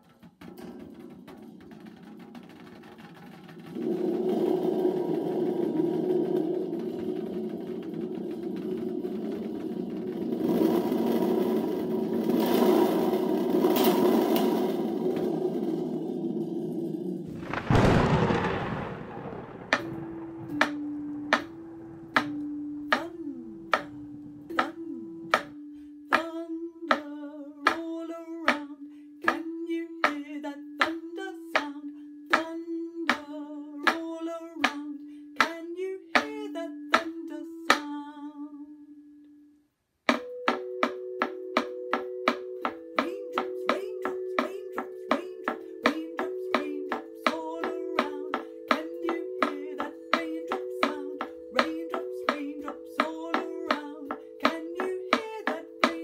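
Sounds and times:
rush of noise: 0:17.3 - 0:22.4
wooden claves tapping: 0:40.1 - 0:56.0.

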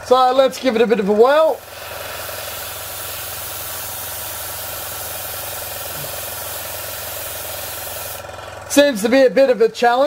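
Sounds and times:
steady low hum: 0:00.0 - 0:09.1
airbrush spraying hiss: 0:01.4 - 0:08.3.

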